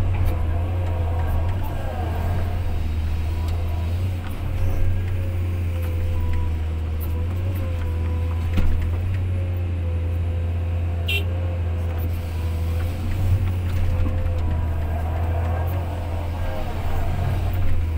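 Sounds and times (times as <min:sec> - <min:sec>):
diesel engine running: 0:00.0 - 0:17.9.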